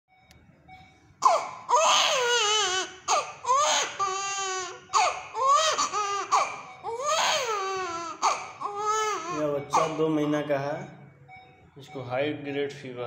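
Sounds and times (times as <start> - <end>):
infant crying: 1.2 - 10.1.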